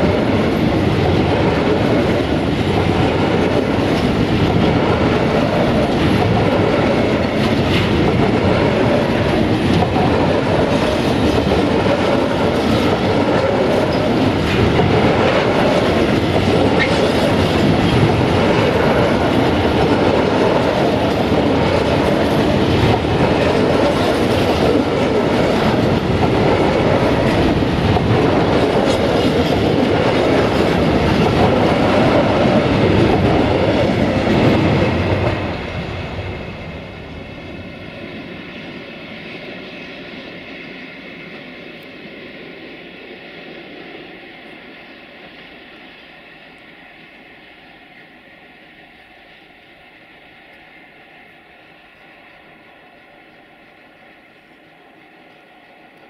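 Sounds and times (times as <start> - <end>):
wheels clattering on rails: 0.0 - 36.5.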